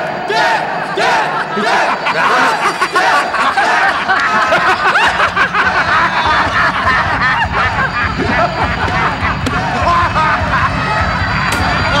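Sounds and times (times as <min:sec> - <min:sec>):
men laughing: 0:00.6 - 0:12.0.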